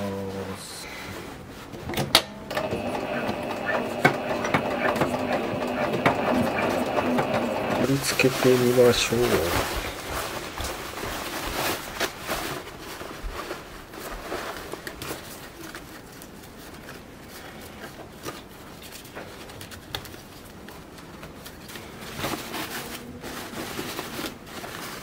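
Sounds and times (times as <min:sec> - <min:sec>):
fabric rustling against basket: 0:07.6 - 0:25.0.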